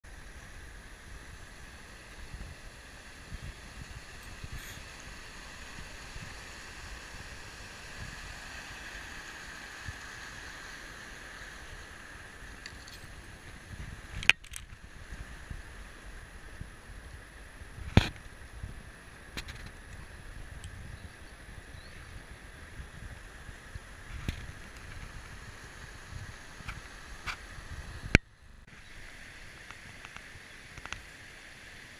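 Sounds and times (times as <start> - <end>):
river water rushing: 0.1 - 14.2
wind buffeting microphone: 13.1 - 15.8.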